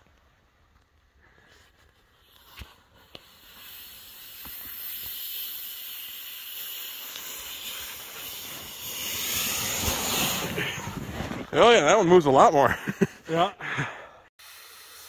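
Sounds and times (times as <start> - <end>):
sled hissing over snow: 1.2 - 11.5, 14.4 - 15.0.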